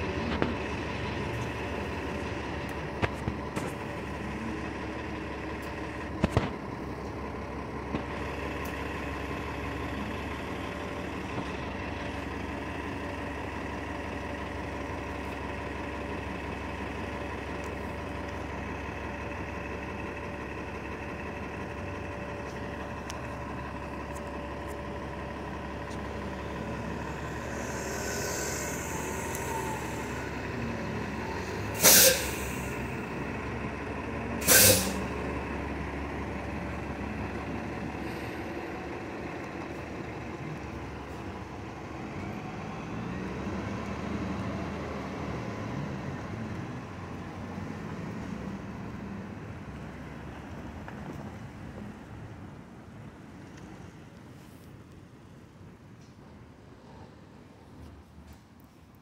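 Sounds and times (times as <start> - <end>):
bus engine idling: 0.0 - 59.0
air brake hisses: 27.3 - 30.3, 31.6 - 32.9, 34.4 - 35.1.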